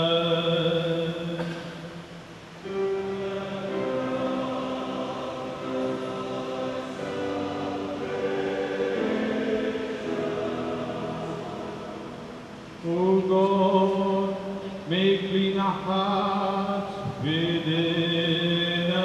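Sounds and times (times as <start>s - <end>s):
group singing a slow chant: 2.6s - 15.2s.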